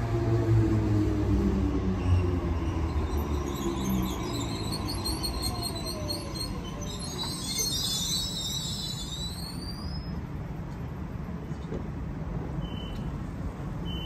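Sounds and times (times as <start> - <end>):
train rumble: 0.0 - 14.0
train wheel squeal and hiss: 2.0 - 10.3, 12.5 - 13.2.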